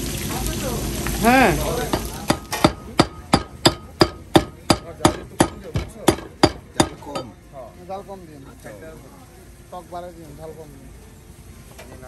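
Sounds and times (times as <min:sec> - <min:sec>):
chopping on a board: 0:01.9 - 0:07.0.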